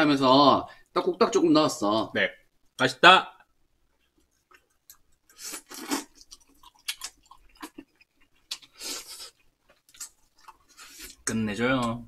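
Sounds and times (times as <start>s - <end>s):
chewing: 4.0s - 11.3s.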